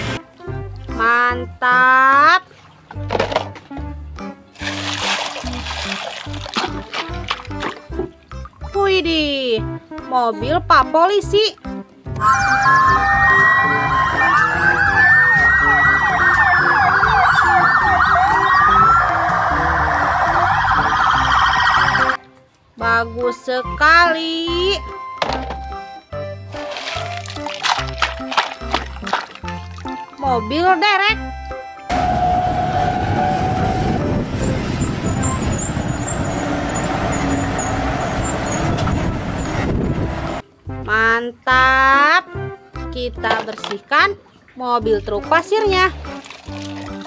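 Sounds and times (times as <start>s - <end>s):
police sirens wailing: 12.2s - 22.2s, 31.1s - 39.7s
tyre and road noise: 12.2s - 22.2s, 31.9s - 40.4s
truck engine running: 31.9s - 40.4s.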